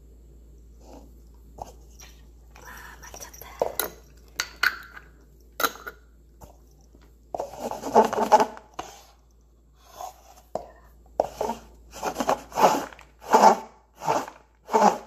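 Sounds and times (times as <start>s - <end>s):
paper cups scraped across wooden floor: 7.4s - 9.2s, 9.8s - 10.5s, 11.2s - 15.0s.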